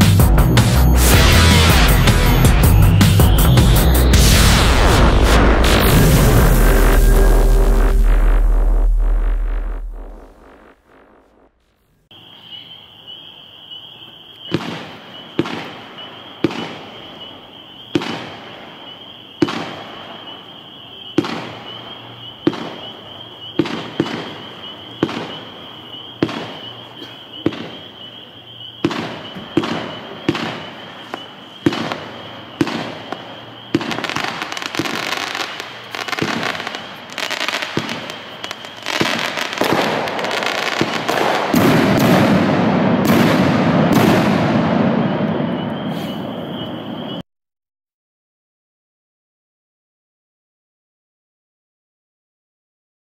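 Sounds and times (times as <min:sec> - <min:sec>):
fireworks shots: 0:00.0 - 0:11.7, 0:14.5 - 0:20.5, 0:21.1 - 0:28.0, 0:28.7 - 0:47.2
dense fireworks hiss: 0:00.0 - 0:12.1, 0:14.4 - 0:47.2.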